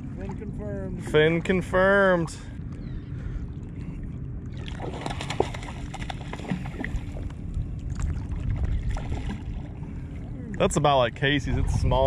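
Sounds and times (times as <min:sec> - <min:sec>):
low rumble of water on microphone: 0:00.0 - 0:12.0
seawater sloshing and lapping: 0:03.2 - 0:12.0.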